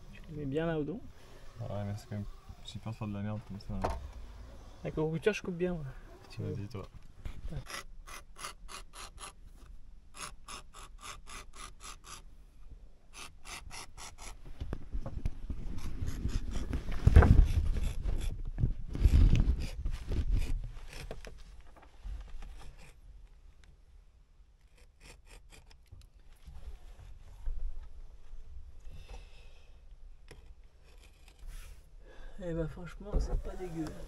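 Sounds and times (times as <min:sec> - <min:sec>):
rubbing and handling of material: 0:26.2 - 0:28.2, 0:33.2 - 0:34.0.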